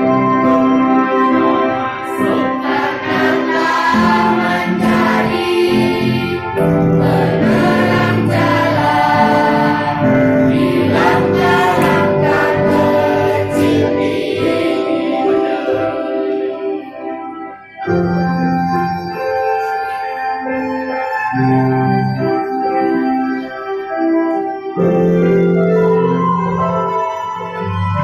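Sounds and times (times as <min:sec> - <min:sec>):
children's choir singing: 0:00.0 - 0:22.3
electronic keyboard chords: 0:00.0 - 0:28.0.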